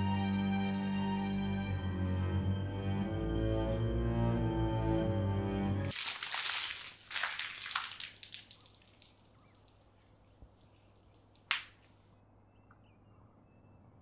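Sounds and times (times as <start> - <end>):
water dripping: 5.9 - 12.1
water splashing: 5.9 - 12.1.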